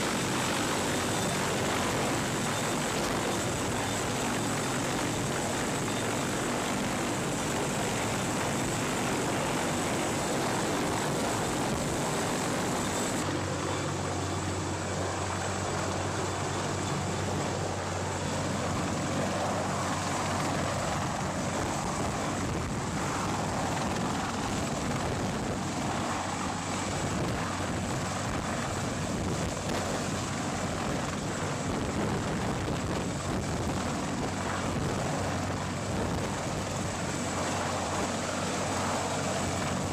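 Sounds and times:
helicopter turbine and rotor noise: 0.0 - 39.9
rotor-wash wind: 0.0 - 39.9.

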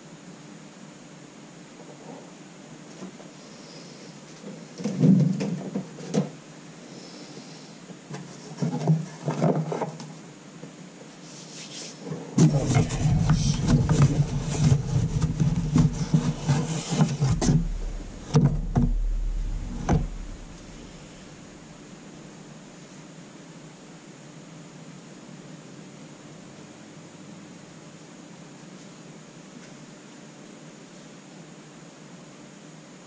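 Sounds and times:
cards rustling and knocking: 12.4 - 20.8
low rumble: 12.4 - 21.7.

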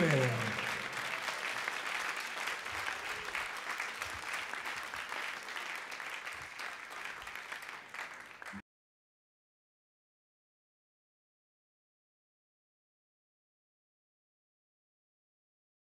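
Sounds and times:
audience applause: 0.0 - 8.6.

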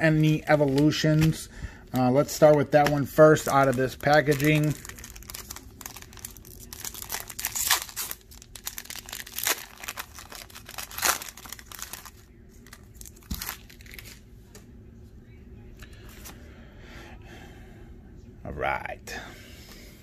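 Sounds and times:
foil wrapper crinkling and tearing: 2.2 - 14.2.

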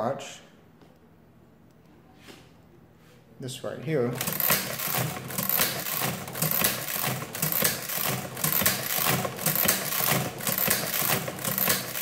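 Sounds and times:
adding machine clattering: 4.1 - 12.0.

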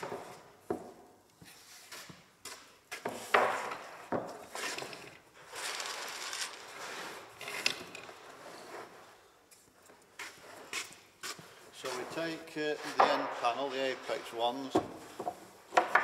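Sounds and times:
wood knocking on wood: 12.9 - 13.4, 14.7 - 16.0.

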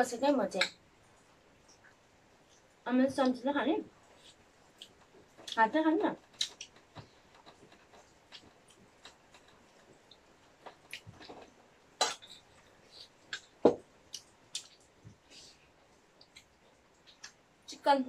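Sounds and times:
chewing: 4.1 - 5.6, 6.2 - 15.0.

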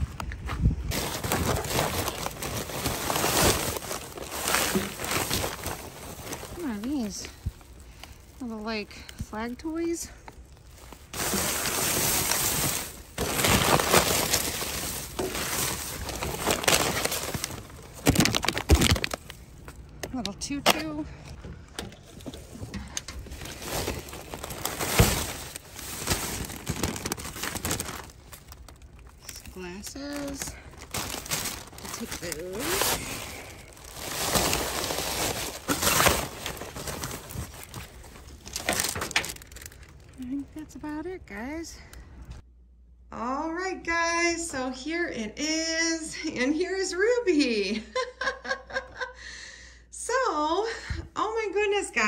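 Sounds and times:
plastic and paper crinkling: 0.9 - 41.1.

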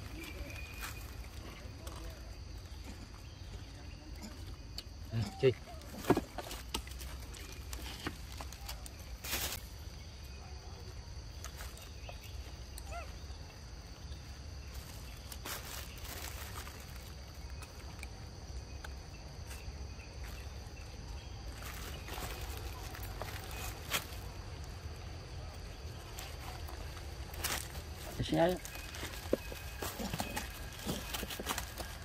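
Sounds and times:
high insect drone: 0.0 - 32.0
rustles and clicks: 25.8 - 32.0.

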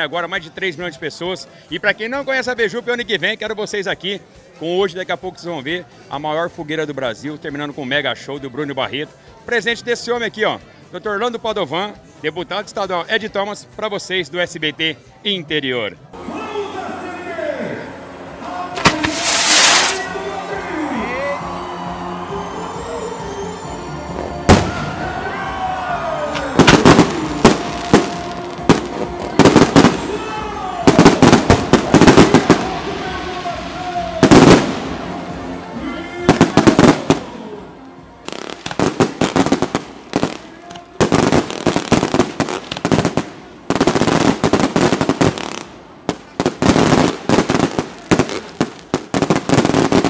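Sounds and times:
fireworks bangs: 18.4 - 20.4, 24.1 - 25.1, 26.3 - 35.5, 36.3 - 37.4, 38.3 - 50.0
falling firework whistle: 18.8 - 20.2, 20.8 - 25.2, 26.1 - 32.7.

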